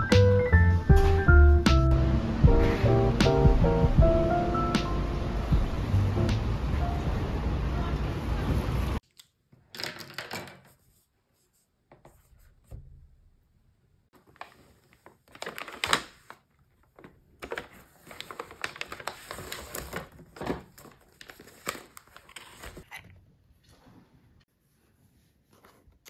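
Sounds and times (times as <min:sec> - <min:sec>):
paper bag rustling: 0:14.2 - 0:16.4, 0:17.0 - 0:22.9.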